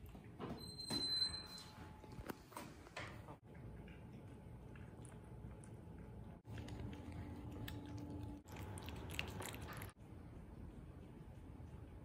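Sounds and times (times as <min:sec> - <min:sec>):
cats chewing and lapping: 0:03.3 - 0:12.0.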